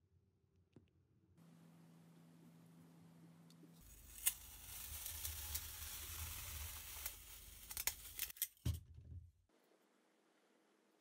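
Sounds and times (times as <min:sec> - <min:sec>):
blade slicing kinetic sand: 0:03.8 - 0:08.4.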